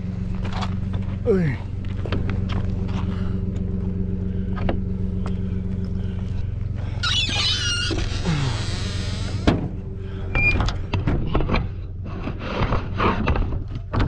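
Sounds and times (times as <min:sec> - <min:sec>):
footsteps crunching on rocky ground: 0:00.0 - 0:06.9
pickup engine idling: 0:00.0 - 0:13.0
harsh scraping rustle: 0:06.8 - 0:10.2.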